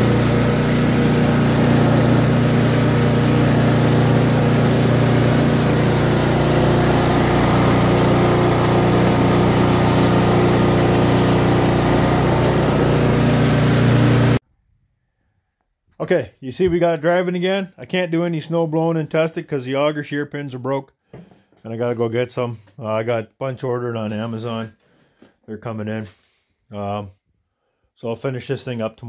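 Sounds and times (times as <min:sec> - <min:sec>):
snowblower engine running: 0:00.0 - 0:14.4.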